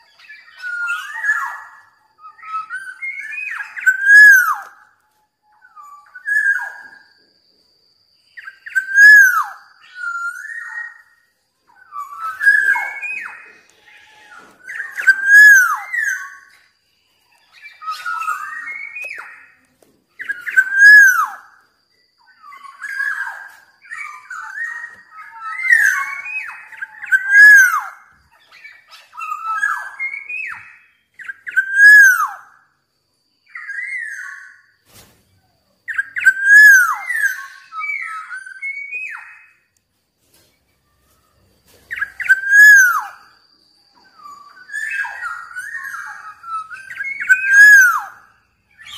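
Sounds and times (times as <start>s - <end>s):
oriole fluty whistled song: 0.0s - 48.9s
thin high chirps: 8.2s - 32.4s.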